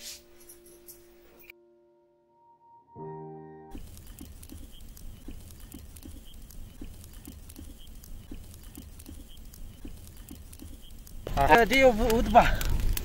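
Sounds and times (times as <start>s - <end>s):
campfire crackling and popping: 3.7s - 13.0s.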